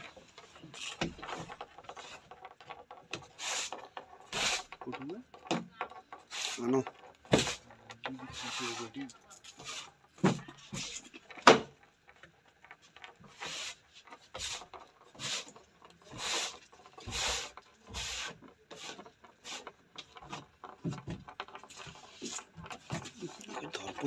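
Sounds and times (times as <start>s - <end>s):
beetle wings scraping wood: 3.2s - 5.0s, 6.1s - 10.0s.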